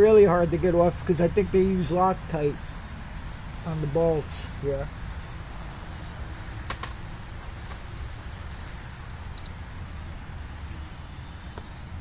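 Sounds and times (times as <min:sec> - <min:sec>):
steady low hum: 0:00.0 - 0:12.0
faint bird chirps: 0:04.6 - 0:05.0, 0:08.3 - 0:08.7.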